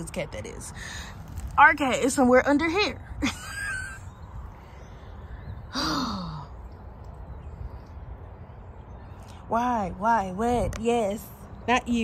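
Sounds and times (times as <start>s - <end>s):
woman sighing: 5.7s - 6.6s.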